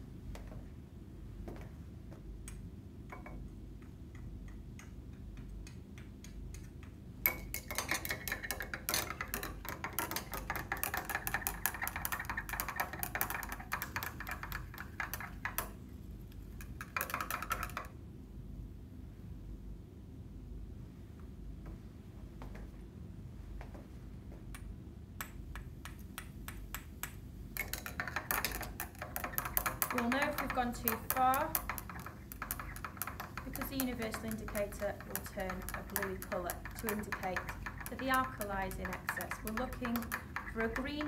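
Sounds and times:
glass rod clinking in beaker: 27.6 - 41.0.

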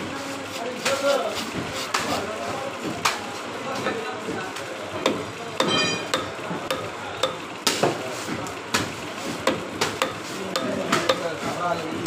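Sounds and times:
knife tapping and scraping fish: 0.8 - 2.3, 4.3 - 11.6.

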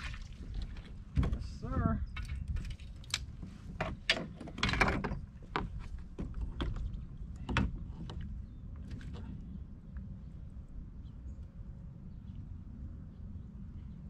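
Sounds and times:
steady low rumble: 5.2 - 14.0.

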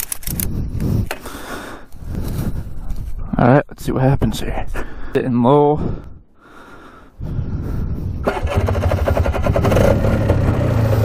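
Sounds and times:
atv engine pulsing: 8.2 - 11.0.

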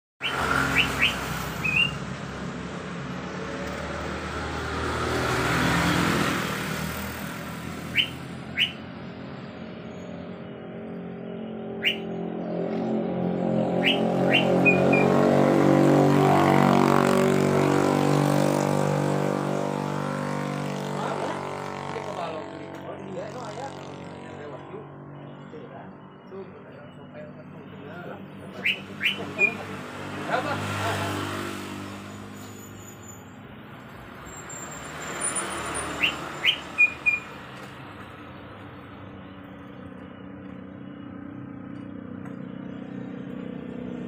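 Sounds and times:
bird whistled calls: 0.2 - 2.0, 7.8 - 8.9, 11.7 - 12.2, 13.7 - 15.2, 26.7 - 29.7, 35.9 - 37.4
passing motor vehicles hum: 0.2 - 44.0.

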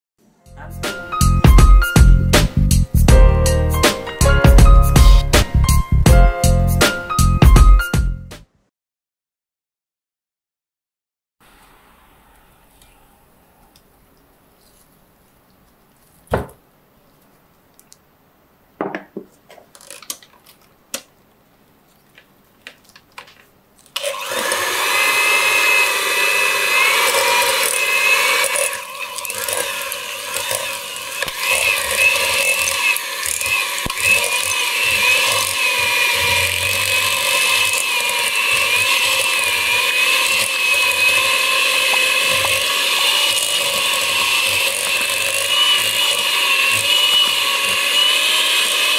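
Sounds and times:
electric hand mixer whining: 24.0 - 48.9.

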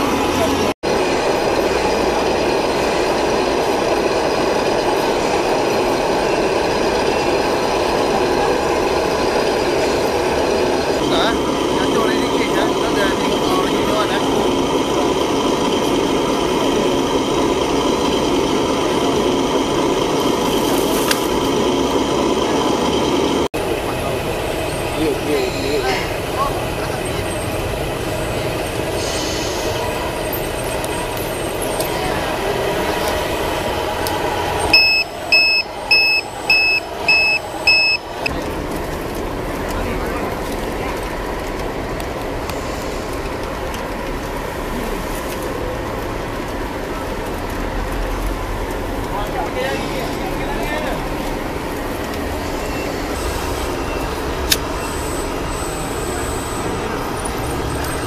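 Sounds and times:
model bulldozer engine rumble: 0.0 - 58.0
steady background noise: 0.0 - 58.0
vehicle reversing alarm beeps: 34.6 - 38.3, 52.4 - 57.3.

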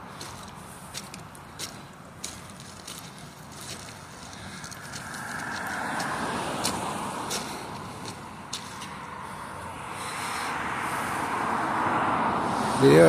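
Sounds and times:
road traffic passing: 0.0 - 13.0.

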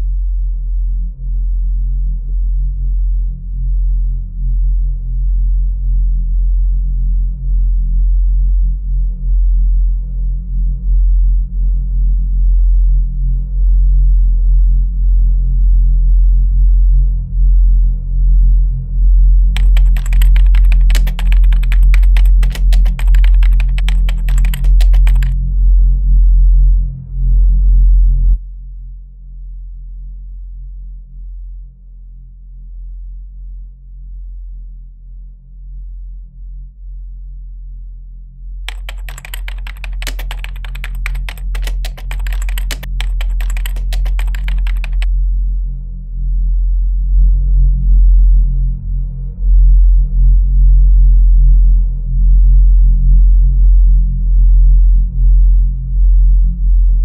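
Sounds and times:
computer keyboard typing: 19.6 - 25.4, 38.7 - 45.1.

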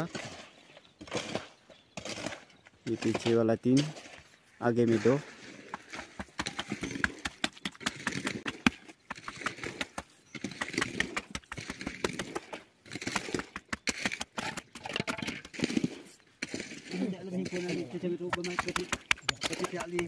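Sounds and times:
pole tamping wet concrete: 0.0 - 20.0.

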